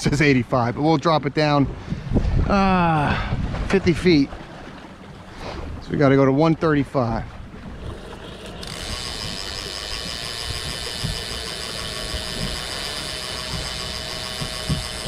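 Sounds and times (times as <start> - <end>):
electric motor and gears whining: 7.7 - 15.0.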